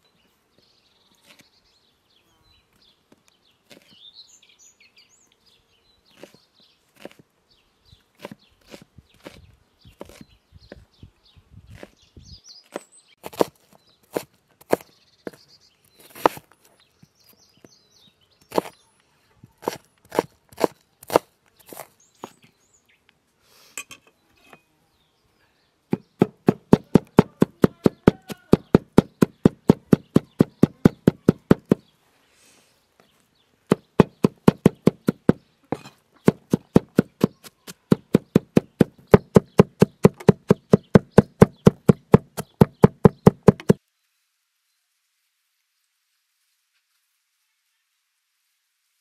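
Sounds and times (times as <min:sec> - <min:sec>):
knife chopping on wooden board: 0:18.5 - 0:18.7, 0:25.9 - 0:31.8, 0:33.7 - 0:43.8.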